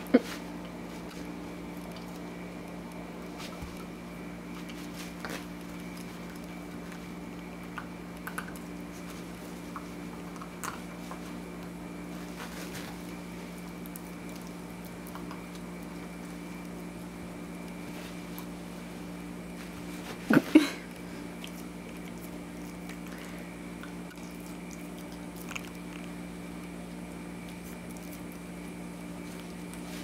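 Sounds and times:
steady hum: 0:00.0 - 0:30.0
dog chewing toys: 0:00.6 - 0:18.6, 0:21.3 - 0:30.0.

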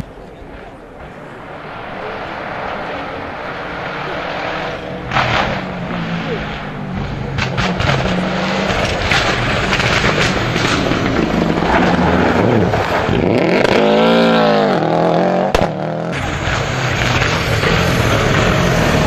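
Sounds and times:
rally car engine accelerating: 0:00.5 - 0:19.0
sharp crack: 0:05.0 - 0:14.0, 0:15.4 - 0:19.0.

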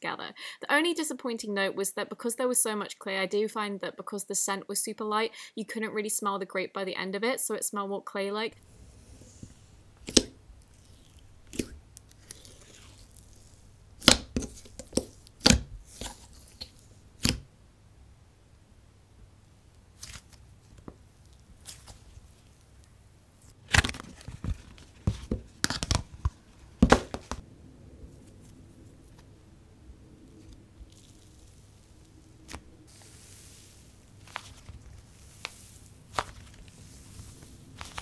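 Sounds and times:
sticky slime pops and crackles: 0:10.0 - 0:17.4.

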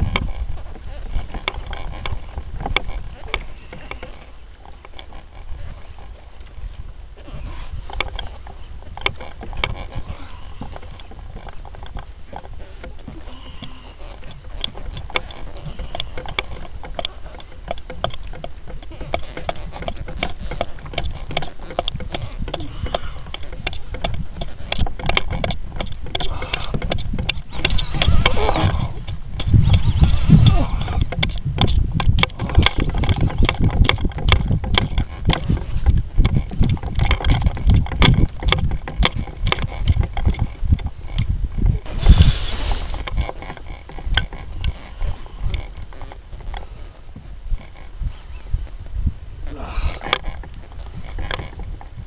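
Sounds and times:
handling noise: 0:00.0 - 0:52.0
fishing reel clicking: 0:12.8 - 0:31.4.

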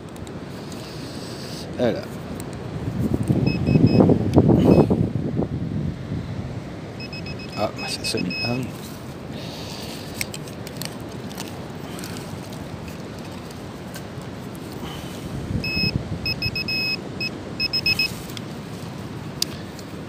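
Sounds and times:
steady background hiss: 0:00.0 - 0:20.0
metal detector beeping: 0:03.4 - 0:04.9, 0:07.0 - 0:08.7, 0:15.6 - 0:18.2.

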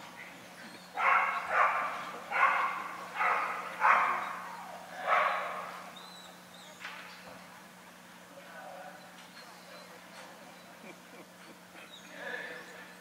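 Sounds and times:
dog barking with echo: 0:01.0 - 0:04.4, 0:05.0 - 0:05.7.

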